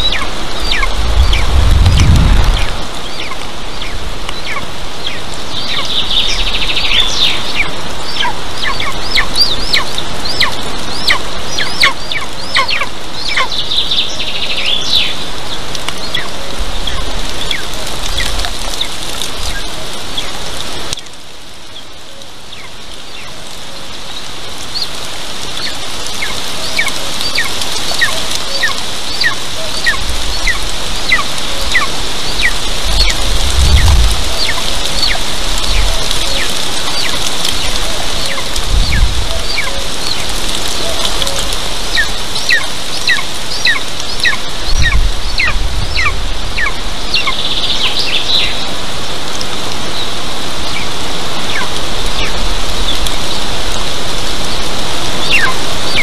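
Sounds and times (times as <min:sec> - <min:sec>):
bird chirps: 0:00.0 - 0:01.6, 0:02.6 - 0:19.6, 0:25.6 - 0:48.7, 0:55.2 - 0:56.0
bird twittering: 0:00.0 - 0:18.9, 0:25.6 - 0:48.7, 0:55.2 - 0:56.0
light rain hiss: 0:00.0 - 0:56.0.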